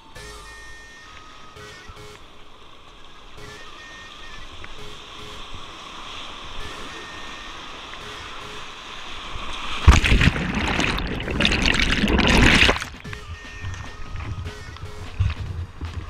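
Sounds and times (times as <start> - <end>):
white water rushing: 0.0 - 16.0
loud water splash: 7.9 - 14.2.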